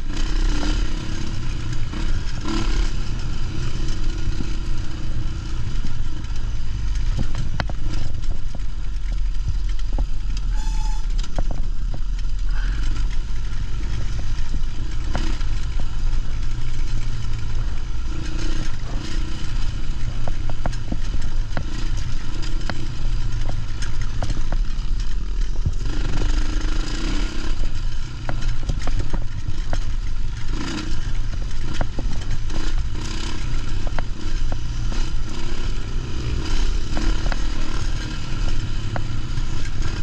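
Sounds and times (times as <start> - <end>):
dirt bike engine: 0.0 - 40.0
stones ticking and chassis clatter: 0.0 - 40.0.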